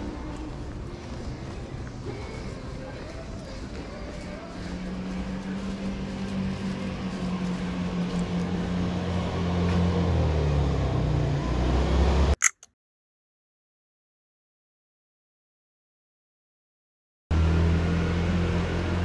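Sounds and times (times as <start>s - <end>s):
motor scooter engine: 4.4s - 12.4s.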